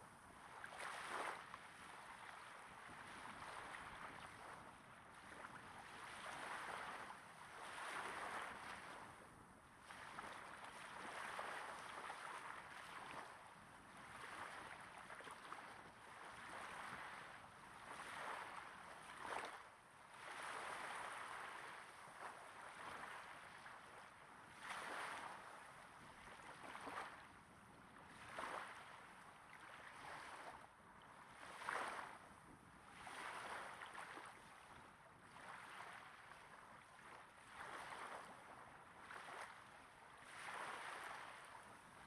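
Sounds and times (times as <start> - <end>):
small waves lapping on beach: 0.0 - 42.0.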